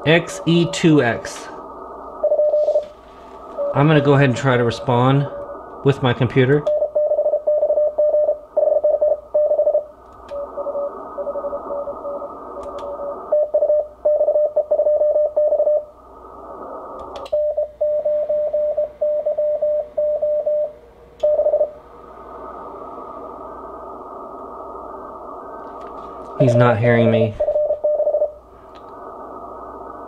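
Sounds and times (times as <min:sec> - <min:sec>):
radio band hiss: 0:00.0 - 0:06.7, 0:10.1 - 0:13.3, 0:16.0 - 0:17.2, 0:21.7 - 0:30.0
morse code tones: 0:02.2 - 0:05.0, 0:06.7 - 0:12.3, 0:17.4 - 0:21.8, 0:26.4 - 0:28.4
sharp clicks: 0:12.6 - 0:13.0, 0:17.0 - 0:17.4.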